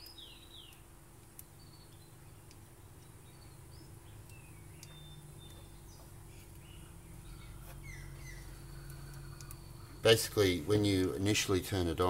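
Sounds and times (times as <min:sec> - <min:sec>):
faint birdsong chirps: 0:00.0 - 0:12.0
low steady hum: 0:00.0 - 0:12.0
light click: 0:08.8 - 0:09.6.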